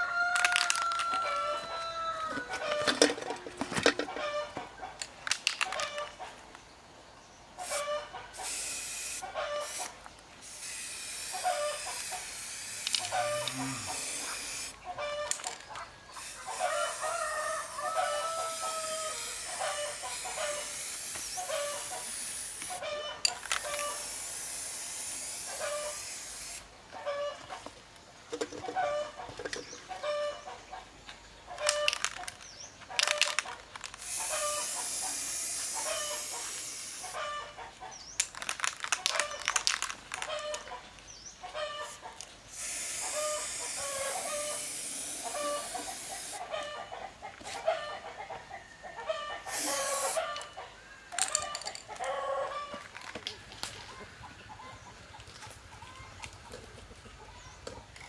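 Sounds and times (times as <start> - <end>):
chickens clucking: 0.0 - 6.6, 7.6 - 8.5, 9.2 - 10.0, 13.0 - 20.8, 21.4 - 24.1, 26.8 - 58.0
spray paint can hissing: 7.6 - 14.8, 16.2 - 26.7, 33.0 - 37.2, 41.9 - 46.4, 49.5 - 50.5.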